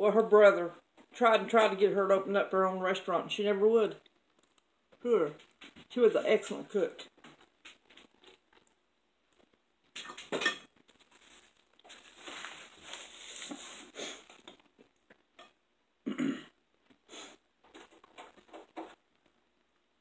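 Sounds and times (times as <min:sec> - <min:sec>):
cutlery clinking on plates: 0:10.0 - 0:10.7.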